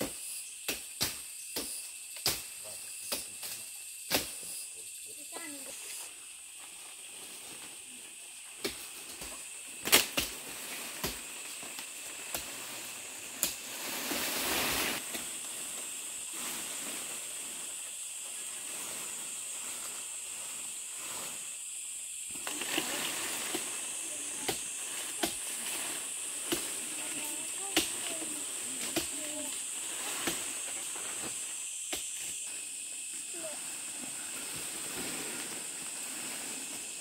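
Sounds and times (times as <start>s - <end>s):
steady high hiss: 0.0s - 37.0s
leaves rustling and snapping: 8.6s - 12.7s, 22.3s - 23.8s.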